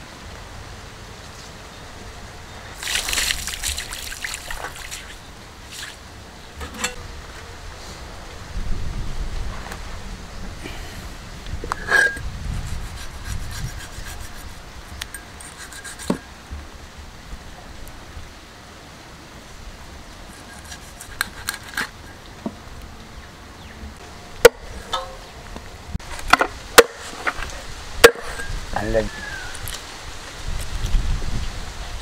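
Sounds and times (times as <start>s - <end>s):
knife scraping fish skin: 12.7s - 14.6s, 15.4s - 16.2s, 20.3s - 22.0s.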